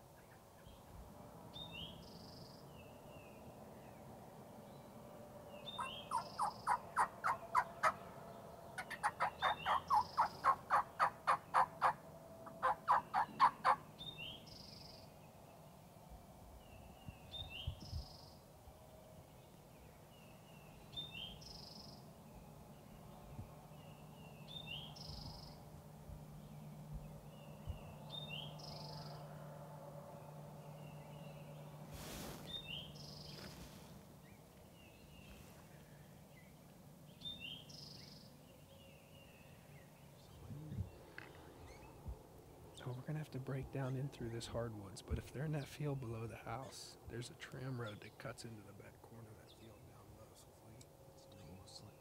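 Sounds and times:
songbird chirping: 0:00.0 - 0:52.0
wild turkey yelping: 0:05.7 - 0:08.0, 0:08.8 - 0:14.1.

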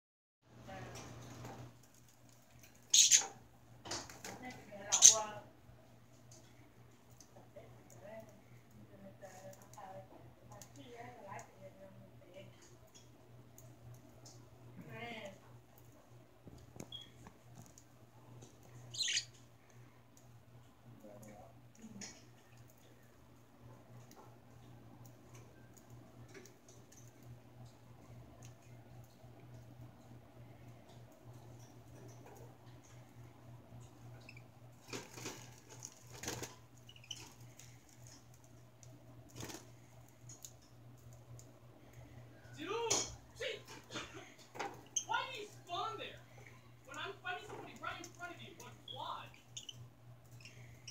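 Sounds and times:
steady low hum: 0:00.5 - 0:50.9
bird feet and beaks on wire: 0:00.9 - 0:05.4, 0:21.0 - 0:45.9, 0:46.5 - 0:50.9
harsh bird squawk: 0:02.9 - 0:03.3, 0:18.9 - 0:19.3
budgerigar chirp: 0:03.0 - 0:03.2, 0:18.9 - 0:19.3.

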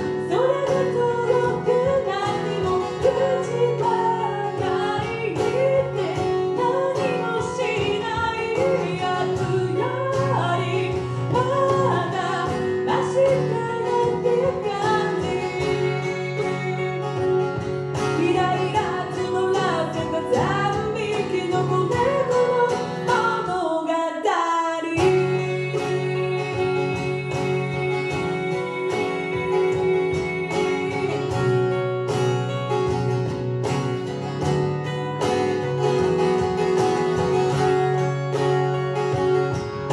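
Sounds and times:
woman singing: 0:00.0 - 0:33.0
acoustic guitar: 0:00.0 - 0:39.9
looped backing: 0:25.0 - 0:39.9.

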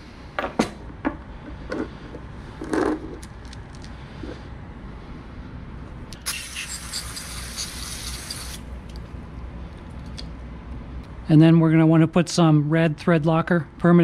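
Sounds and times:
aerosol can spraying: 0:06.2 - 0:08.6.

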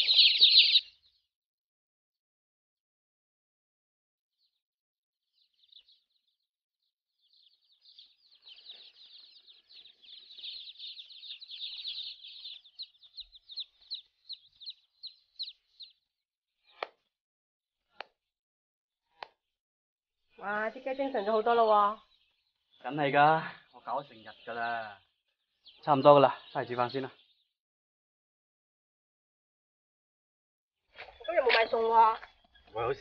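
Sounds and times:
chicks peeping: 0:00.0 - 0:01.2, 0:05.3 - 0:06.4, 0:07.2 - 0:16.1, 0:21.0 - 0:27.5.

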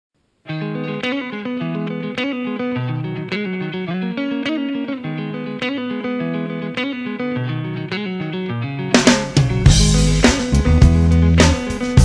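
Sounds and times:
picked guitar notes: 0:00.4 - 0:12.0.

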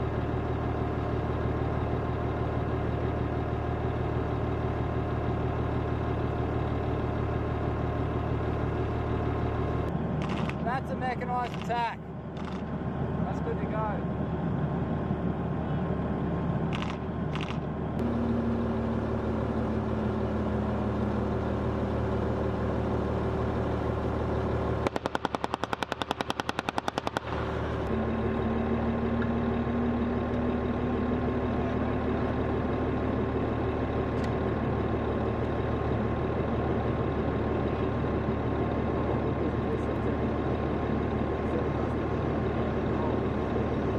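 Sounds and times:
diesel engine with whine: 0:00.0 - 0:43.9
machine-gun fire: 0:24.8 - 0:27.4.

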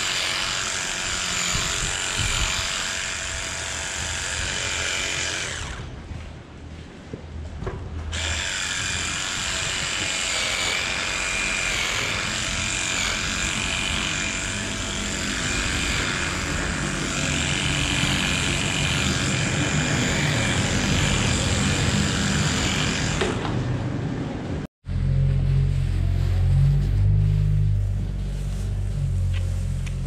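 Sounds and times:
motor whining: 0:00.0 - 0:06.0, 0:08.1 - 0:23.4.

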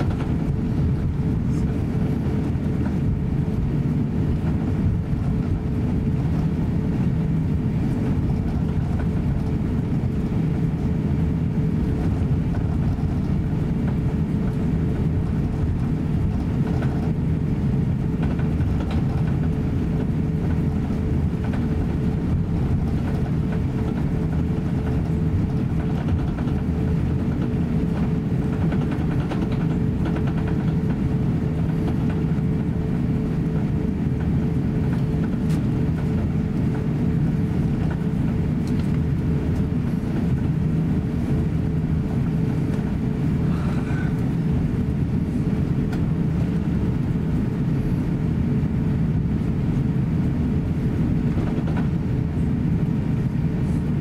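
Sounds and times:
aircraft engine rumble: 0:00.0 - 0:54.0
steady cabin hum: 0:00.0 - 0:54.0.

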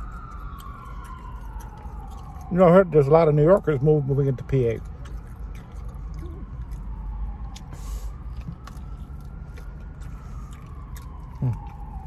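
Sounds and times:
distant siren wailing: 0:00.0 - 0:12.0
road traffic rumble: 0:00.0 - 0:12.0.

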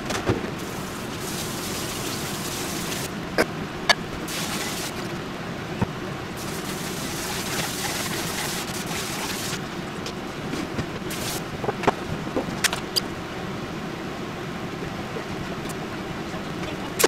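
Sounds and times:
steady background hum: 0:00.0 - 0:17.0
hiss: 0:00.6 - 0:03.1, 0:04.3 - 0:05.1, 0:06.4 - 0:09.6, 0:11.1 - 0:11.4.

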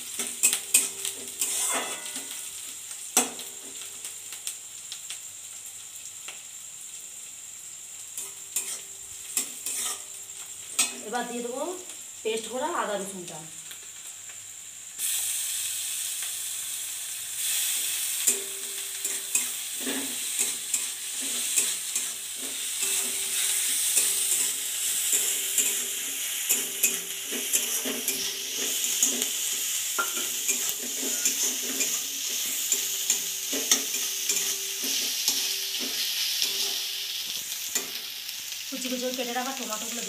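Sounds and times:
food sizzling in oil: 0:00.0 - 0:40.0
metal spatula scraping pan: 0:00.4 - 0:02.4, 0:08.2 - 0:10.1, 0:30.0 - 0:36.9.

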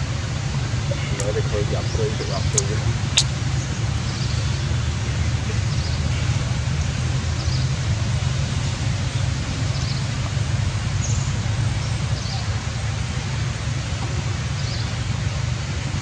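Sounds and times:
low outdoor rumble: 0:00.0 - 0:04.0.

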